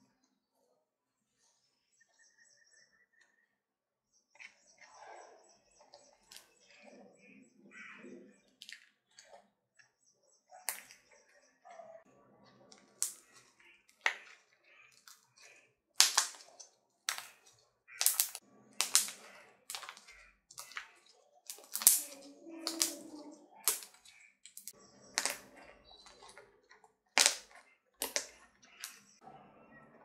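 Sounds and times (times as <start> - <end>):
slime squelching: 4.3 - 11.2, 12.5 - 29.2
slime popping and clicking: 16.0 - 20.9, 21.5 - 25.4, 27.2 - 29.0.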